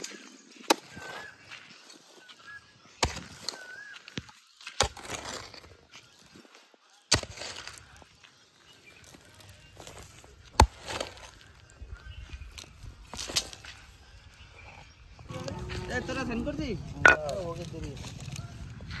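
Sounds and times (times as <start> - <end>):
soil clods crumbling: 2.9 - 14.4
hoe striking stony soil: 3.0 - 3.6, 4.2 - 5.7, 7.1 - 7.9, 9.8 - 11.5.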